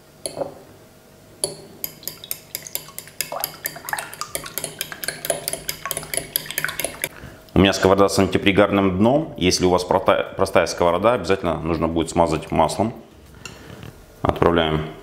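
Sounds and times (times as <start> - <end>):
fork beating eggs in glass bowl: 1.4 - 7.1.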